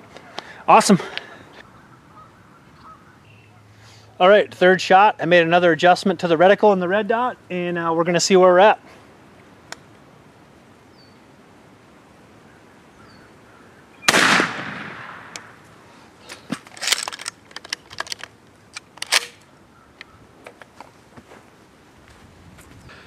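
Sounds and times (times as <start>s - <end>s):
shotgun shot with echo: 14.0s - 15.5s
gun handling clicks: 16.2s - 20.9s.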